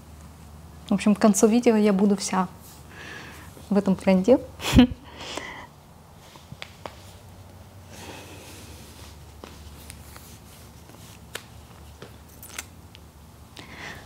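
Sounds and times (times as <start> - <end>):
fabric rustling: 8.5 - 12.4.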